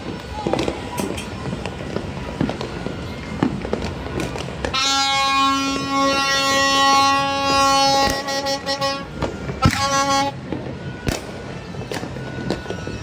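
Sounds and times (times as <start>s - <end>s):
firework pops and bangs: 0.0s - 6.1s, 7.4s - 13.0s
horn blast: 4.6s - 13.0s.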